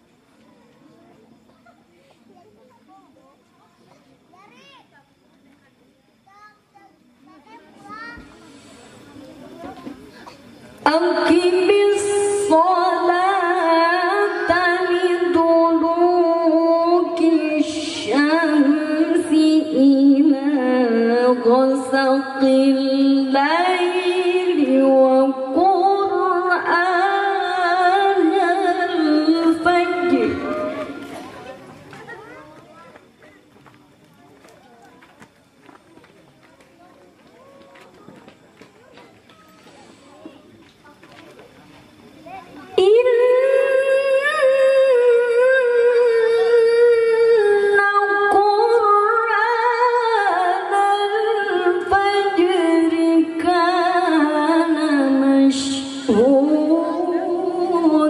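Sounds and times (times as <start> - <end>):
woman reciting melodically: 10.8 - 31.0, 42.8 - 58.0.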